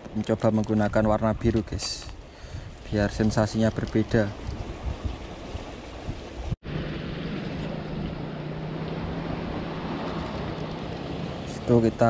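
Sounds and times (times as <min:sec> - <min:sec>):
wind on microphone: 0:00.7 - 0:12.0
sea surf: 0:02.8 - 0:12.0.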